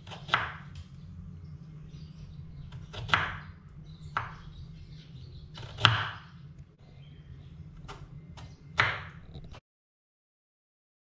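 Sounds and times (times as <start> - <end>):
knife cutting carrot on board: 0.0 - 0.8, 2.7 - 3.4, 4.1 - 4.4, 5.6 - 6.3, 7.8 - 9.6
low hum: 0.0 - 9.6.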